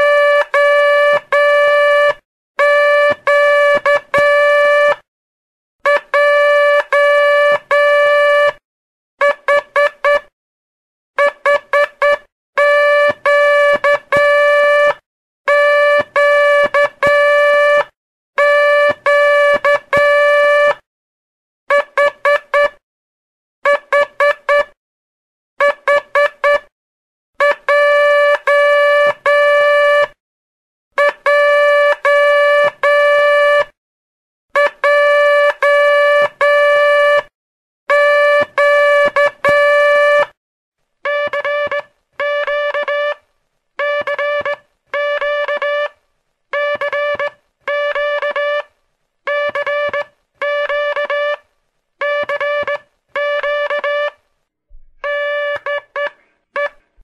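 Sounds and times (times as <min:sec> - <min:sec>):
morse code tone: 0:00.0 - 0:05.0, 0:05.9 - 0:08.6, 0:09.2 - 0:10.3, 0:11.2 - 0:20.8, 0:21.7 - 0:22.8, 0:23.6 - 0:24.8, 0:25.6 - 0:26.7, 0:27.4 - 0:30.2, 0:31.0 - 0:33.8, 0:34.6 - 0:37.3, 0:37.9 - 0:40.4, 0:41.1 - 0:43.2, 0:43.8 - 0:45.9, 0:46.6 - 0:48.7, 0:49.3 - 0:51.4, 0:52.0 - 0:54.2, 0:55.0 - 0:57.0.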